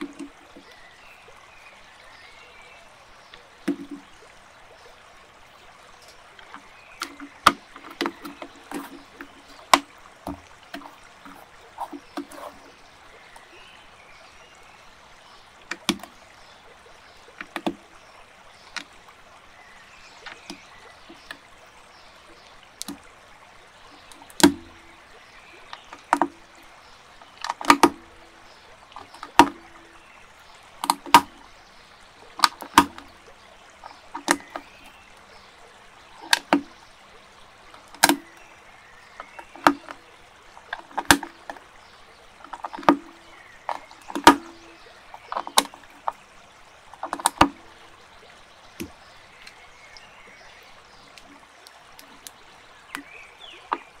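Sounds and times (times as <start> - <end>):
faint steady hiss: 0.0 - 54.0
plastic bricks clicking together: 27.3 - 28.2, 42.4 - 44.6.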